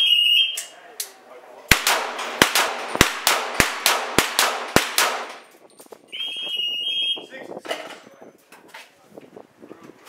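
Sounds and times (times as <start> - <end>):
pistol shots: 1.7 - 5.5
high beep: 6.1 - 7.3.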